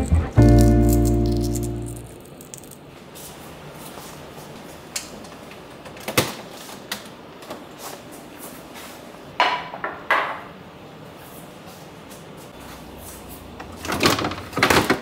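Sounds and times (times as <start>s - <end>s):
plastic containers clattering: 13.8s - 15.0s.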